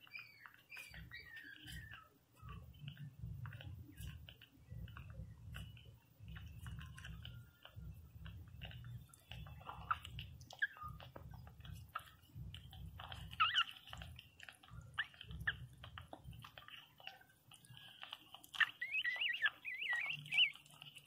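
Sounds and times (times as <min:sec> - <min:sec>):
puppies suckling: 0:00.0 - 0:21.0
puppies whimpering squeaks: 0:00.0 - 0:21.0.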